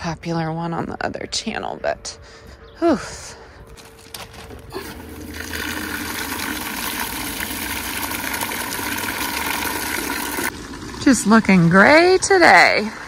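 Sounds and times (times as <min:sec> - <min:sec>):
water pouring into plastic dish: 0:04.9 - 0:11.2.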